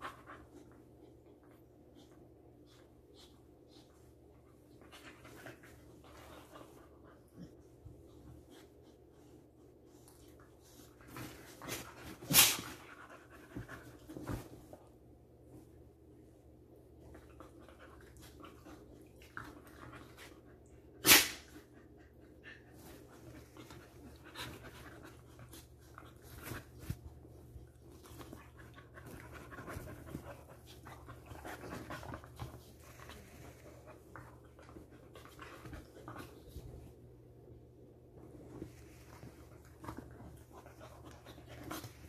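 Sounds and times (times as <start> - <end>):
dogs panting while play-fighting: 0.0 - 15.6, 21.5 - 37.1, 38.4 - 42.0.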